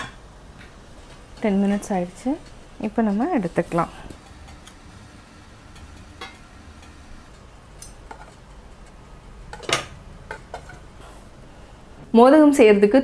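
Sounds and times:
metal tongs clinking on plates: 4.2s - 7.3s.

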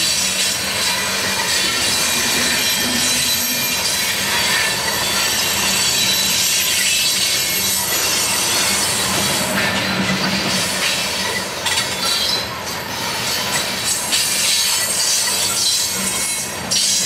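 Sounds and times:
train wheels on rails: 0.0s - 17.0s
high-pitched wheel squeal: 0.4s - 9.4s.

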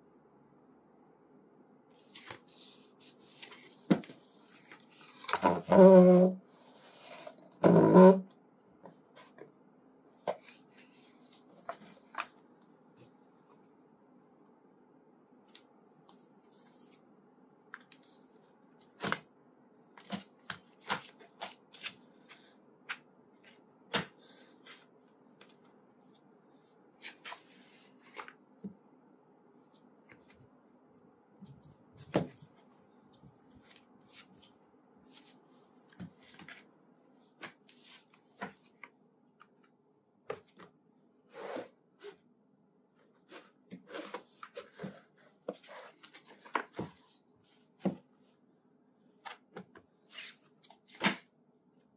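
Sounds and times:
faint steady hum: 0.0s - 51.9s.

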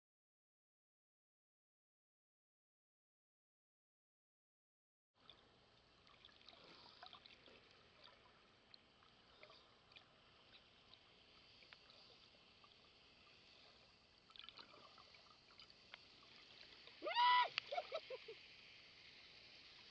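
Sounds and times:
small clicks and crackles: 5.2s - 19.9s
underwater hiss: 6.5s - 8.6s, 9.2s - 19.9s.

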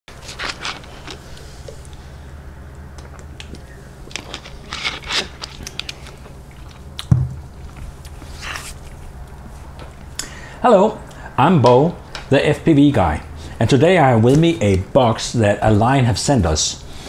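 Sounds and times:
steady low hum: 0.1s - 17.0s
sharp thump: 7.1s - 7.5s.

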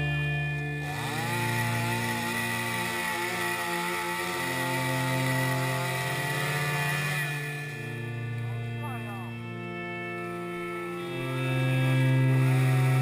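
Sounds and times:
chainsaw cutting log: 0.0s - 13.0s.

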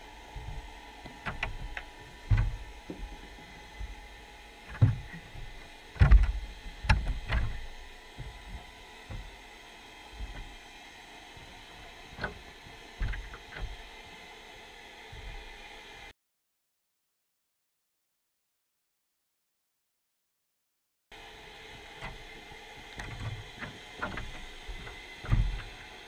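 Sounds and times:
dull underwater knocks: 4.7s - 7.6s.

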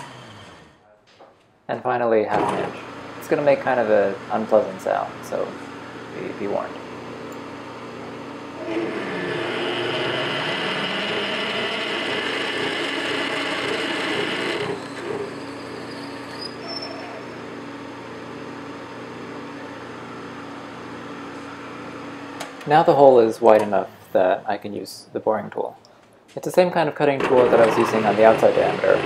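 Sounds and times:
lathe running: 6.8s - 22.3s
drill bit grinding into steel: 8.6s - 17.7s.

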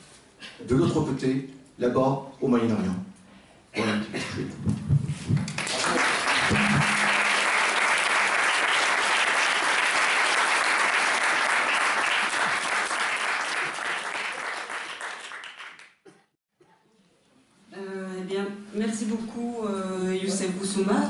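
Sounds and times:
audience applauding: 5.5s - 16.0s.

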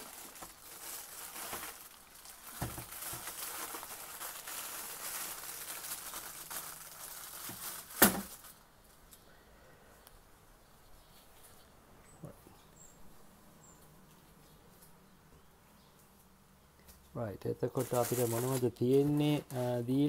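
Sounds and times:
plastic bags crinkling: 0.0s - 8.6s, 17.6s - 20.0s
sharp crackle: 0.0s - 8.6s, 17.8s - 19.7s.

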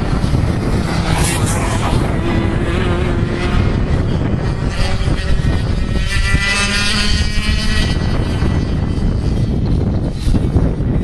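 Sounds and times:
steady low rumble: 0.0s - 6.4s
kart engine buzzing at high revs: 0.0s - 11.0s.

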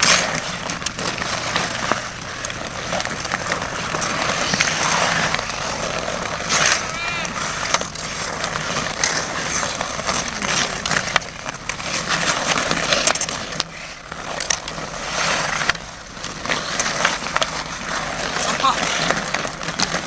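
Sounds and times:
hockey sticks and puck clacking: 0.0s - 20.0s
skate blades scraping ice: 0.0s - 20.0s.

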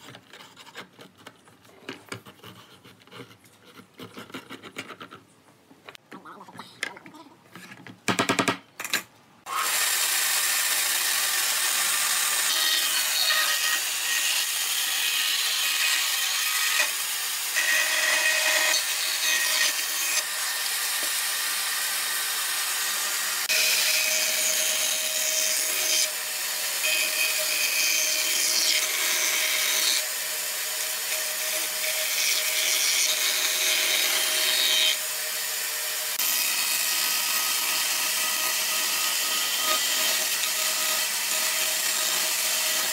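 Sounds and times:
power tool cutting wood: 9.5s - 42.9s.

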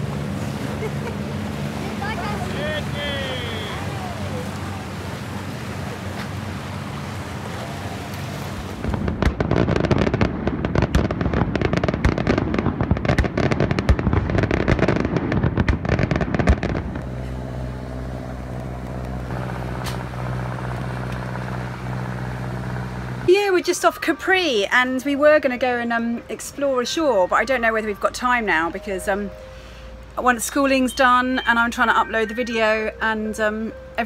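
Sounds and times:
low engine hum: 0.0s - 23.6s
fireworks bangs and crackling: 8.8s - 23.4s.

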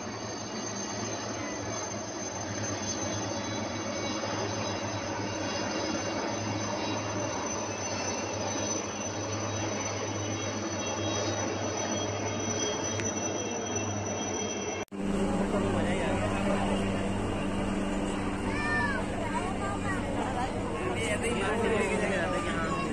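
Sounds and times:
helicopters flying past: 14.9s - 22.9s.

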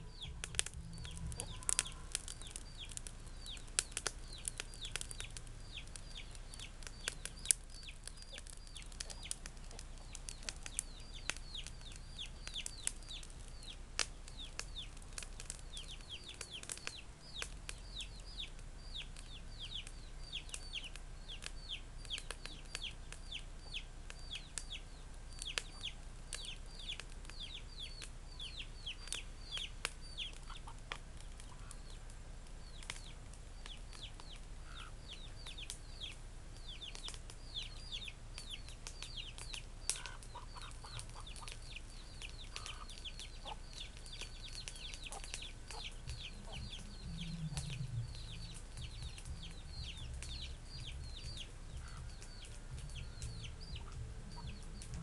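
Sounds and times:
hen clucking: 0.0s - 3.6s, 28.5s - 31.9s, 34.2s - 35.3s, 39.9s - 55.0s
chicks peeping: 0.0s - 55.0s.

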